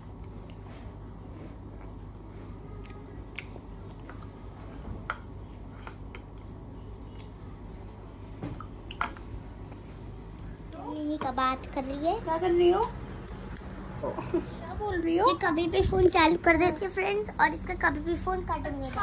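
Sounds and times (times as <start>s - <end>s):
steady low hum: 0.0s - 19.0s
soft mouth sounds: 1.8s - 4.4s.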